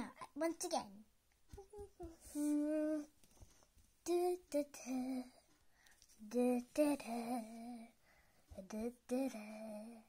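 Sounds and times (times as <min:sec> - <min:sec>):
girl humming a tune: 0:01.6 - 0:03.2, 0:04.0 - 0:05.5.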